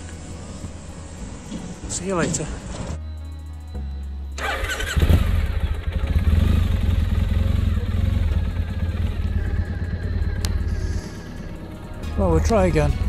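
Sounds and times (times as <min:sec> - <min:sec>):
motorcycle engine starting: 0:04.3 - 0:13.0
motorcycle engine running: 0:04.4 - 0:13.0.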